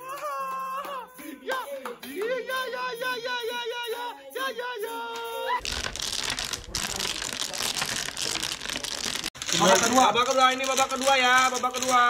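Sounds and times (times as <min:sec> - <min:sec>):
domino tiles clattering: 0:05.6 - 0:12.0.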